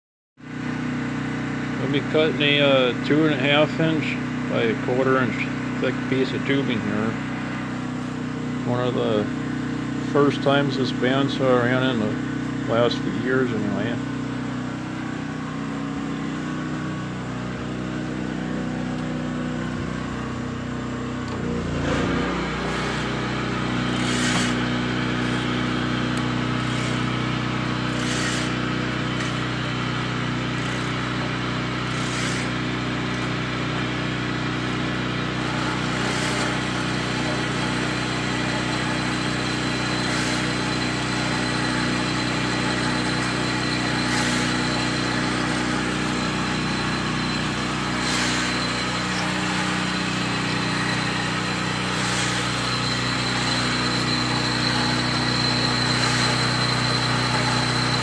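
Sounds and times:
band saw motor hum: 0.5s - 58.0s
saw cutting steel hiss: 22.0s - 25.8s, 27.9s - 29.4s, 35.4s - 58.0s.

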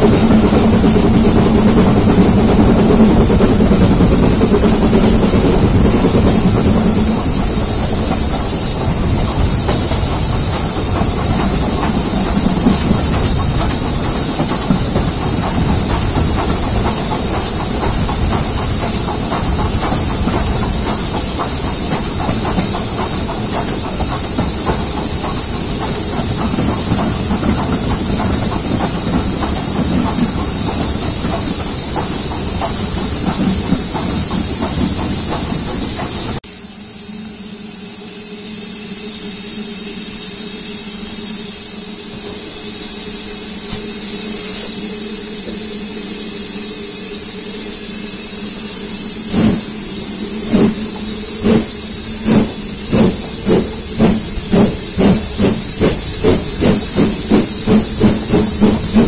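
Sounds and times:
locomotive exhaust beats: 0.0s - 36.4s, 49.2s - 59.0s
steam hiss: 0.0s - 59.0s
train running noise: 0.0s - 59.0s.

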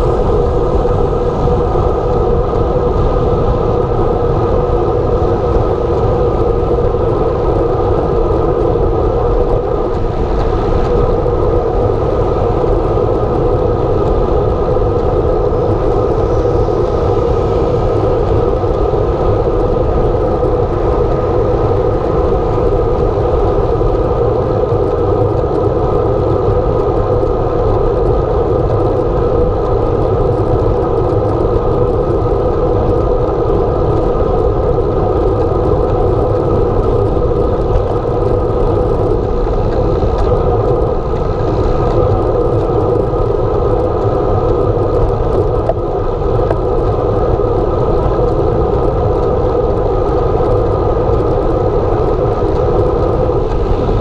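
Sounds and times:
bicycle tyres rolling on asphalt: 0.0s - 54.0s
wind rushing: 0.0s - 54.0s.

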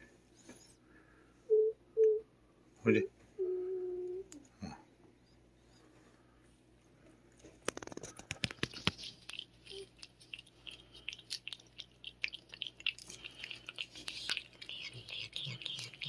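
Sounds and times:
cat lapping wetly: 9.0s - 16.0s.

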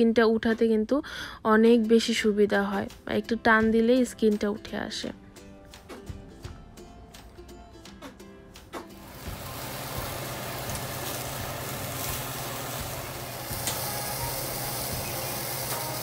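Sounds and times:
eggplant skin sizzling: 9.0s - 16.0s
gas burner hissing: 9.0s - 16.0s.

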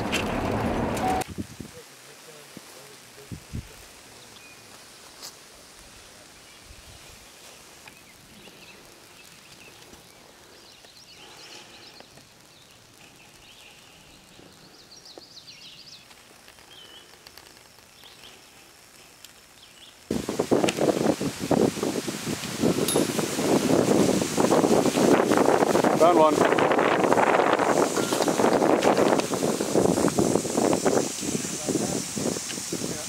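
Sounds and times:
steady outdoor hiss: 0.0s - 33.0s
small birds chirping: 4.0s - 4.8s, 6.0s - 20.1s.

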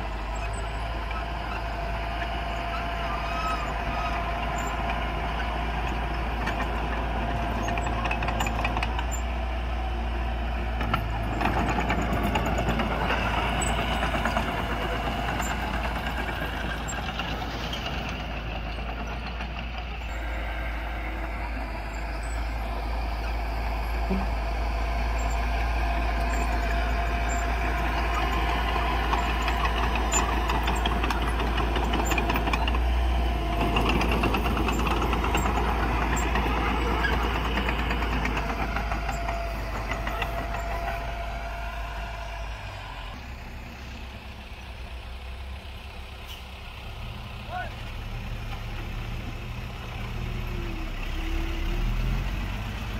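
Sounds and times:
bulldozer diesel engine under load: 0.0s - 52.9s.

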